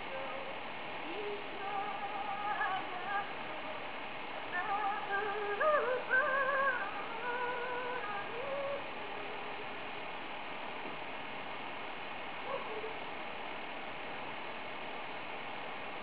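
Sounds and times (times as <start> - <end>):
woman singing unaccompanied: 0.0 - 9.8.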